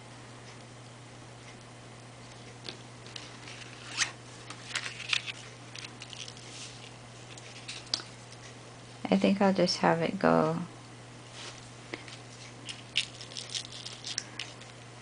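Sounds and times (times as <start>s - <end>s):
faint low hum: 0.0s - 15.0s
paper rustling and scraping: 3.1s - 8.0s.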